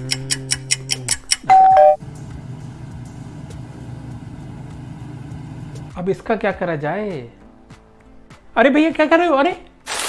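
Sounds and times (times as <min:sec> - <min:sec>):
two-note chime: 0:01.5 - 0:02.0
harvester engine droning: 0:01.5 - 0:05.9.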